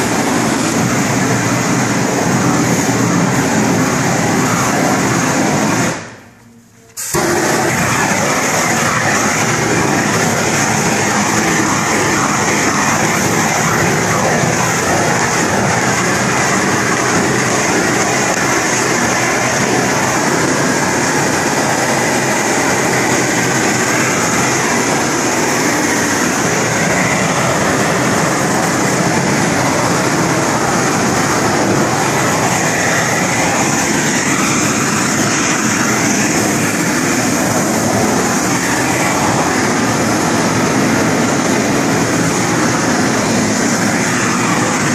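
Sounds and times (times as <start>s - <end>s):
heat gun hissing: 0.0s - 6.1s, 7.0s - 44.9s.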